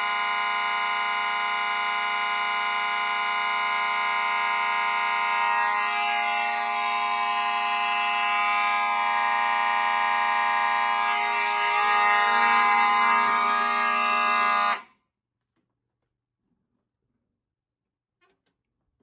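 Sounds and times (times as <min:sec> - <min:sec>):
fire alarm horns: 0:00.0 - 0:14.9.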